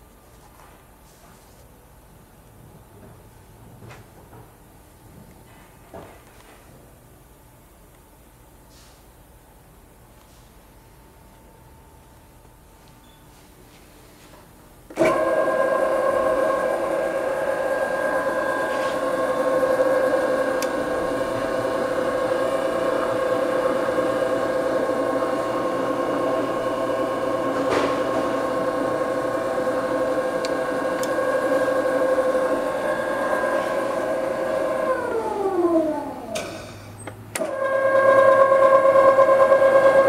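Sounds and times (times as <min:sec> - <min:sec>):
lathe motor whine: 0:15.0 - 0:36.4, 0:37.4 - 0:40.0.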